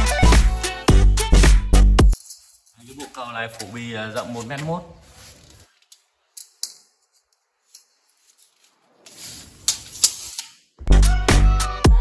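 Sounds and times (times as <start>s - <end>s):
tape measure clicks: 5.9s - 10.7s
metal tape blade scraping: 7.2s - 10.8s.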